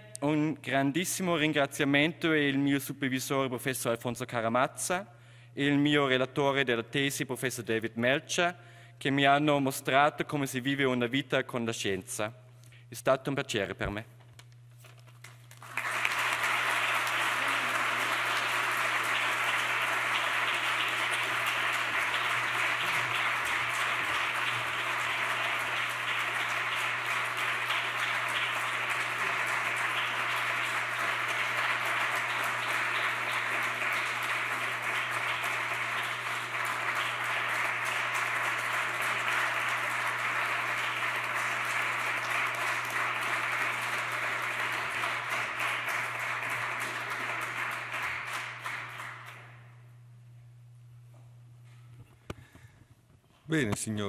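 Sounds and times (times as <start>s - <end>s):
audience applause: 15.5s - 49.7s.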